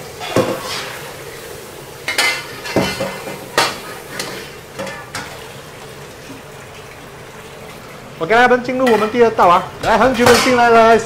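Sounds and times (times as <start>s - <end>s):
tap water running: 0.0s - 11.0s
brush scraping a wok: 0.2s - 1.2s, 2.4s - 5.0s.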